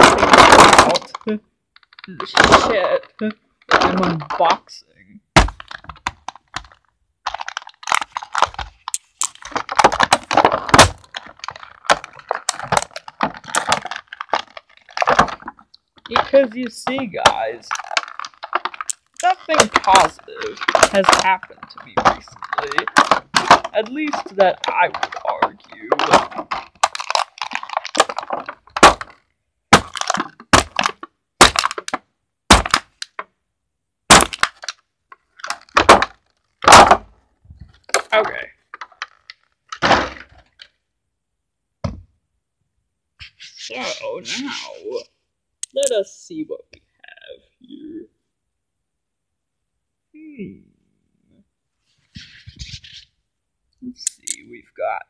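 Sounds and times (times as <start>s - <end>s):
plastic packaging crinkling: 5.4s - 33.2s, 34.1s - 40.7s.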